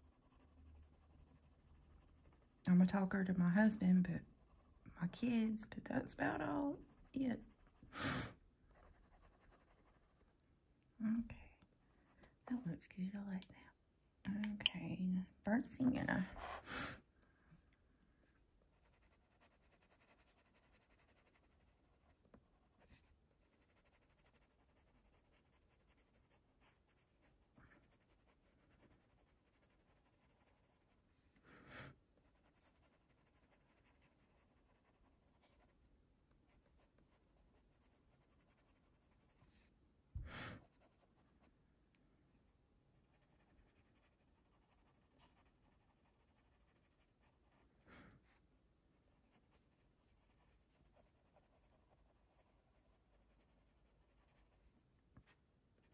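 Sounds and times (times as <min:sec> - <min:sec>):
pencil scratching on paper: 0:00.0 - 0:10.2, 0:16.2 - 0:16.8, 0:18.7 - 0:31.0, 0:32.2 - 0:35.8, 0:36.5 - 0:39.7, 0:40.5 - 0:41.5, 0:43.0 - 0:48.4, 0:49.1 - 0:54.7.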